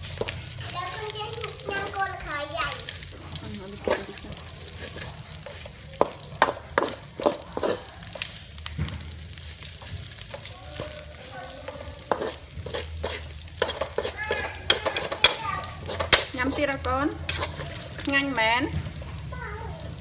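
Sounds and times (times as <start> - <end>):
food sizzling: 0.0 - 20.0
metal spatula scraping a wok: 2.9 - 8.6, 9.3 - 19.4.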